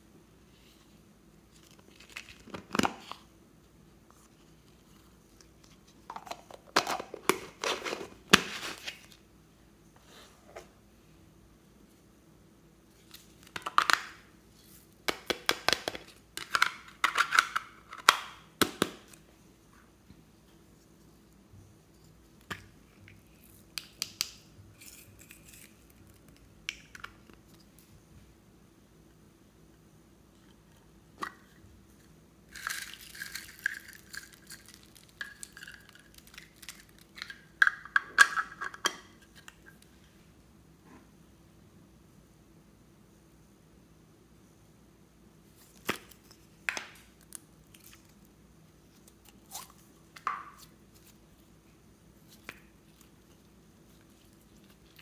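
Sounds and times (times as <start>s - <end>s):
foam beads rattling into glass bowl: 32.5s - 36.1s.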